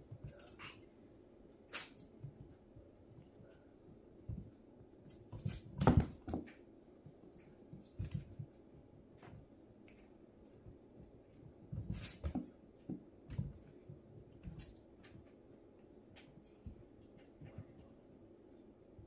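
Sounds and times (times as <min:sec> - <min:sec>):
puppy paws and ball thumping on mesh: 0:04.1 - 0:15.4.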